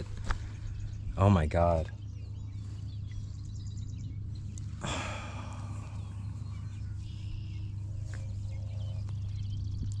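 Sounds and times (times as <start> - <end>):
faint bird chirps: 0.0 - 10.0
steady low hum: 0.0 - 10.0
man sighing: 4.8 - 6.4.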